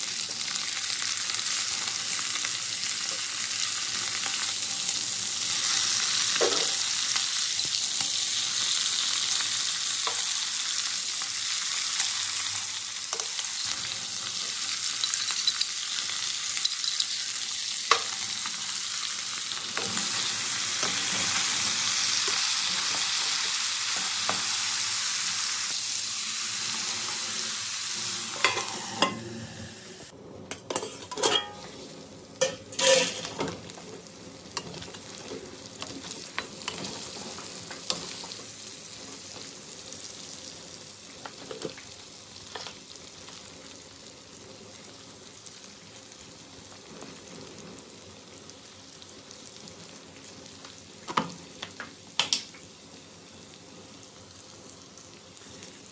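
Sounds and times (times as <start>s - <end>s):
meat sizzling in hot oil: 0.0s - 30.1s, 30.8s - 55.9s
ladle scraping and knocking pan: 30.5s - 31.7s, 32.4s - 33.5s.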